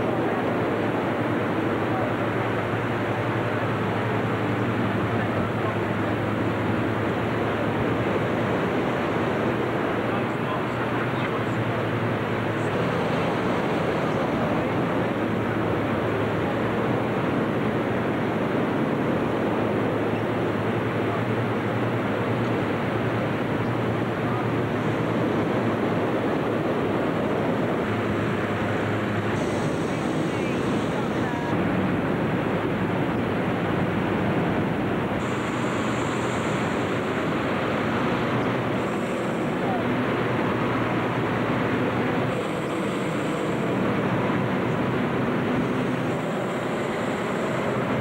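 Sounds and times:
inflation fans running: 0:00.0 - 0:48.0.

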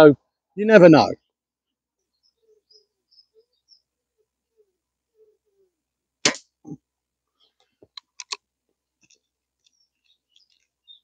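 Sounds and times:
air rifle action clicking: 0:07.9 - 0:08.4.

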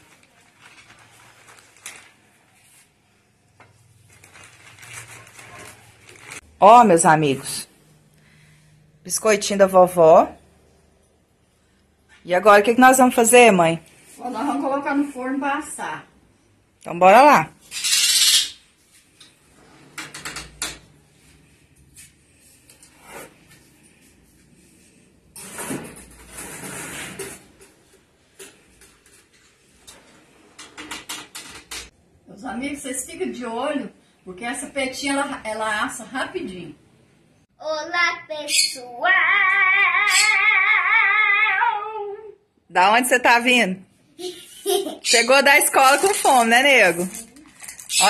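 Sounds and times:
plastic bag crinkling: 0:00.0 - 0:02.8, 0:03.8 - 0:06.5, 0:45.4 - 0:48.0.

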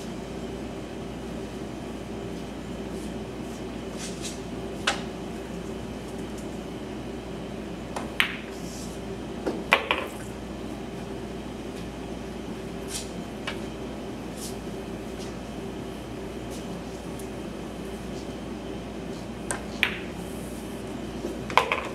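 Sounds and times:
room hum: 0:00.0 - 0:21.9
billiard balls clacking: 0:09.6 - 0:10.2, 0:19.5 - 0:20.2, 0:21.5 - 0:21.9
cue tip striking ball: 0:19.5 - 0:20.1.

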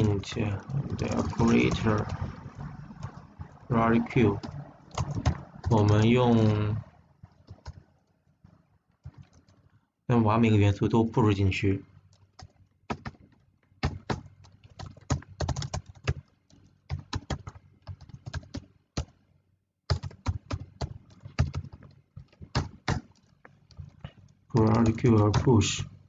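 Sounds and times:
typing on computer keyboard: 0:00.0 - 0:02.3, 0:04.3 - 0:08.2, 0:09.0 - 0:09.7, 0:12.1 - 0:19.2, 0:19.9 - 0:25.8.

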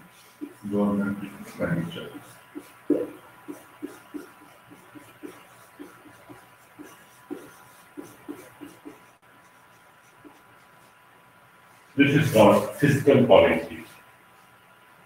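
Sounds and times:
faint steady hum: 0:00.0 - 0:15.0
stylus tapping on tablet: 0:02.6 - 0:09.1.

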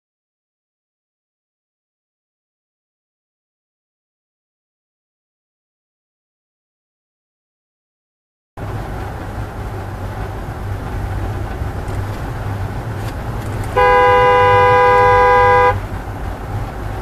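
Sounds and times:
road and engine rumble: 0:08.6 - 0:17.0
two-note car horn: 0:13.8 - 0:15.8.

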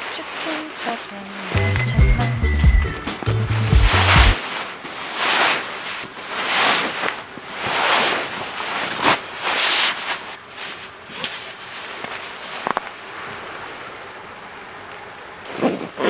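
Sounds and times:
nylon fabric rustling and swishing: 0:00.0 - 0:01.7, 0:03.3 - 0:13.5, 0:15.4 - 0:16.0.

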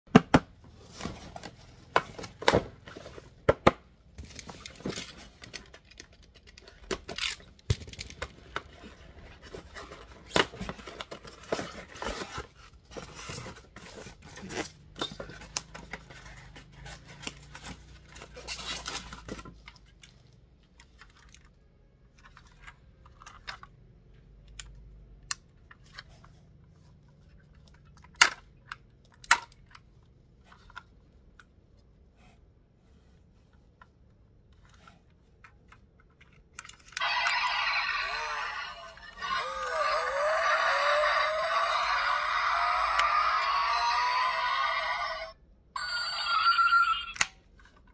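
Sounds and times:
cardboard boxes rustling: 0:00.7 - 0:03.5.

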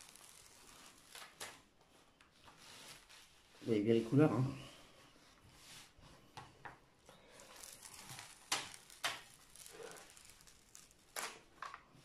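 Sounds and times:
rustling and crinkling plastic film: 0:00.0 - 0:04.5, 0:07.0 - 0:12.0
louder crackles: 0:07.4 - 0:11.6.

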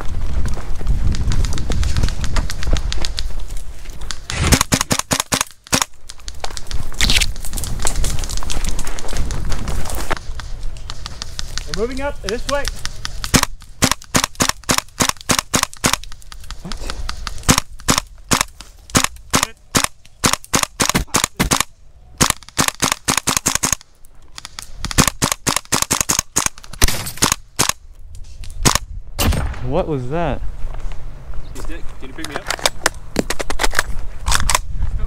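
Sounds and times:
airsoft rifles firing: 0:04.1 - 0:07.5, 0:10.8 - 0:27.8.

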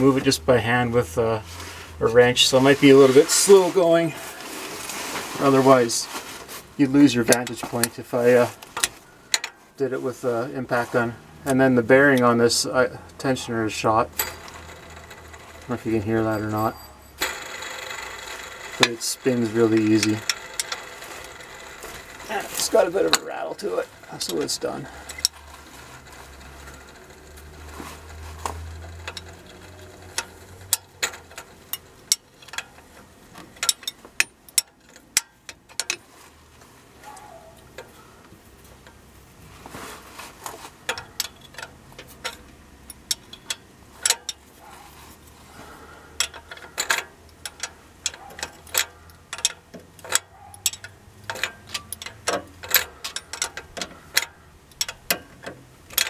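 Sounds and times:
hand ratchet clicking: 0:08.8 - 0:09.6, 0:14.1 - 0:15.8, 0:17.2 - 0:36.0, 0:40.8 - 0:44.5, 0:45.6 - 0:56.0.

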